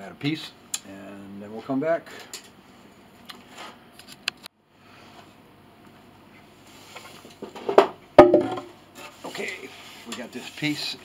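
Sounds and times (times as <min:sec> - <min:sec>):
sharp knock: 0:08.2 - 0:08.7.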